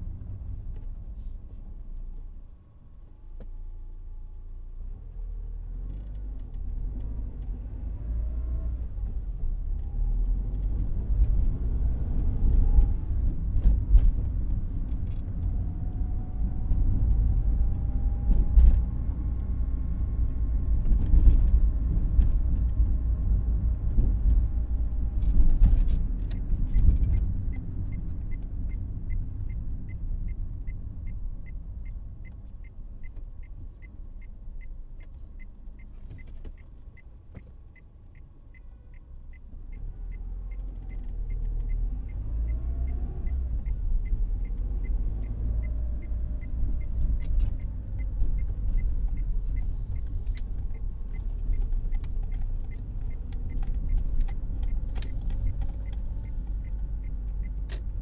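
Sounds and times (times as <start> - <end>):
car engine and road rumble: 0.0 - 58.0
light regular ticking: 42.9 - 58.0.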